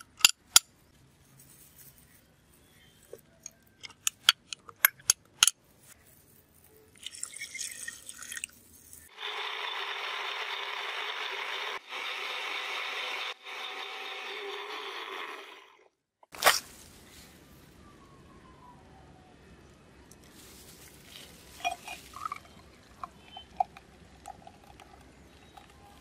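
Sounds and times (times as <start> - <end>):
water pouring: 7.0 - 9.3, 21.4 - 26.0
blender running: 9.1 - 15.9.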